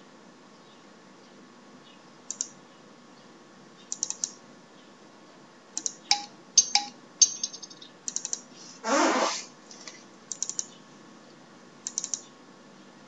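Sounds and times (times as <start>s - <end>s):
keyboard and mouse clicks: 2.3s - 2.6s, 3.9s - 4.4s, 5.8s - 7.0s, 8.1s - 8.4s, 10.3s - 10.8s, 11.8s - 12.3s.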